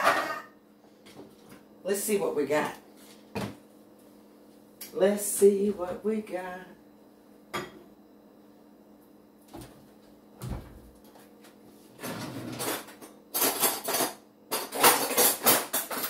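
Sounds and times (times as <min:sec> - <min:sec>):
glass bowl clinking and clattering: 0:00.0 - 0:00.5.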